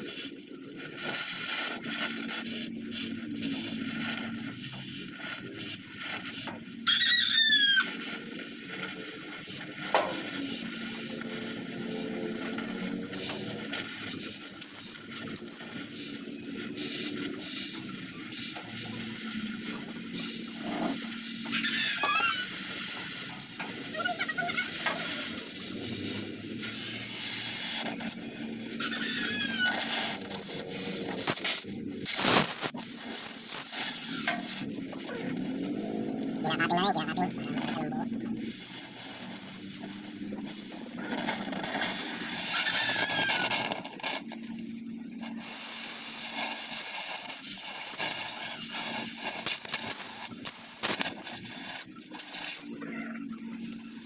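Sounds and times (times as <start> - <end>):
welding torch flame hissing: 0.0 - 52.8, 53.4 - 54.0
high gliding animal calls: 6.8 - 8.1, 21.4 - 23.0, 23.8 - 25.5, 28.7 - 30.0, 42.4 - 43.5.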